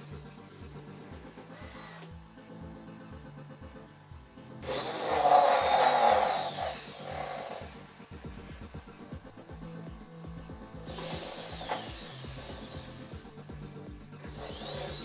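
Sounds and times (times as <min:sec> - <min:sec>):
faint music with low beat: 0:00.0 - 0:15.0
servo motors whining: 0:01.4 - 0:02.2, 0:04.6 - 0:08.0, 0:10.8 - 0:13.2, 0:14.2 - 0:15.0.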